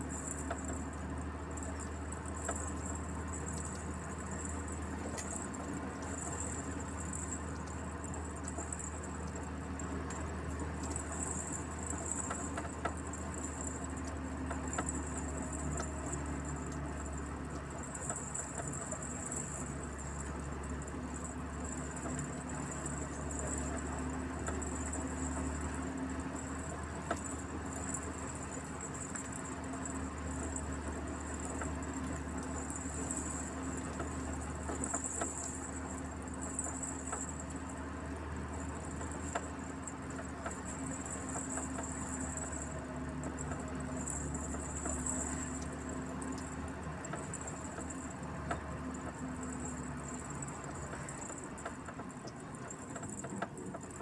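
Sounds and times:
road noise: 0.0s - 54.0s
truck engine drone: 0.0s - 54.0s
rattles and clicks: 31.3s - 37.5s, 39.0s - 54.0s.

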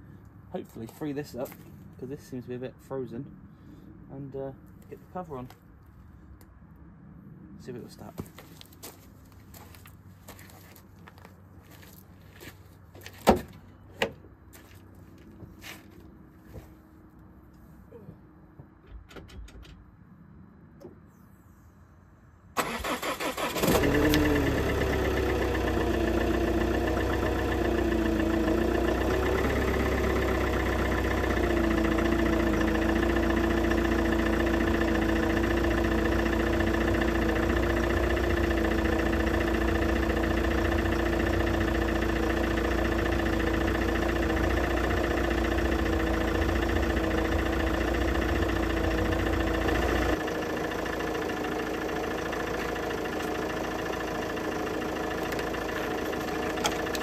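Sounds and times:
diesel engine starting and idling: 22.5s - 57.0s.

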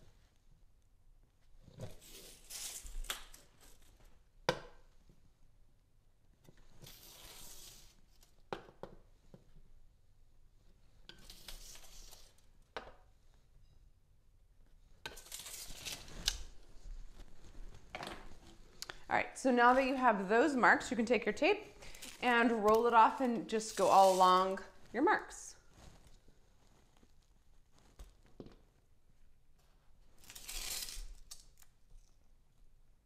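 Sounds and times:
rustling and scraping handling noise: 10.6s - 13.8s, 14.7s - 20.0s, 21.8s - 31.7s.

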